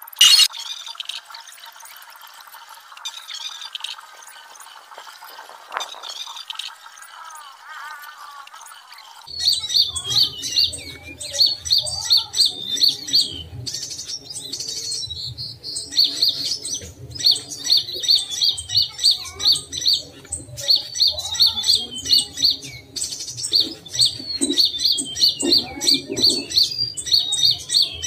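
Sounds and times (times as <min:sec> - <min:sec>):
faint bird warble: 0:00.0 - 0:02.0
songbirds chirping: 0:00.0 - 0:28.0
bird falling whistle: 0:00.2 - 0:00.5.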